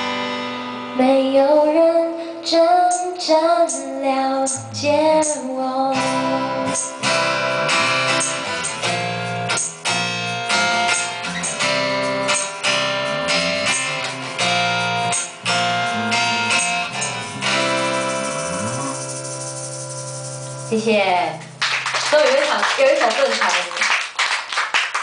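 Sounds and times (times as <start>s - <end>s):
acoustic guitar strumming: 2.8s - 21.6s
electric bass guitar: 3.3s - 21.6s.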